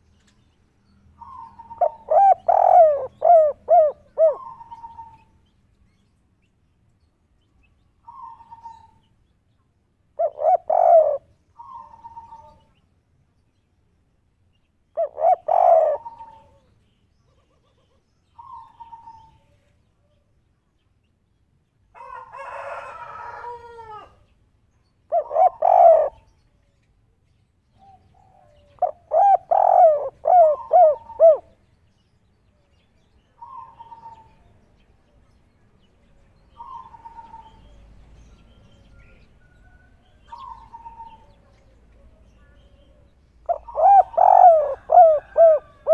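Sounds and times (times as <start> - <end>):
dove cooing: 1.2 - 5.3, 10.2 - 12.7, 14.9 - 16.7, 25.1 - 26.4, 27.8 - 31.6, 33.4 - 34.4, 36.5 - 37.7, 40.2 - 45.9.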